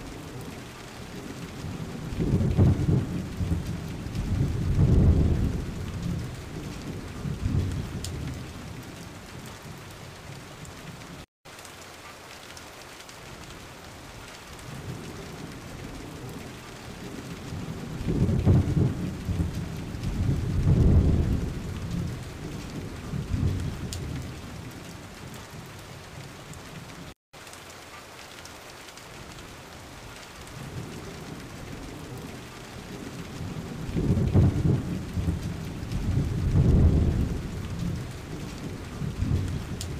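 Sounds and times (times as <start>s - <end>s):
steady rain hiss: 0.0s - 39.9s
rolling thunder: 0.1s - 9.3s, 14.7s - 24.9s, 30.6s - 39.9s.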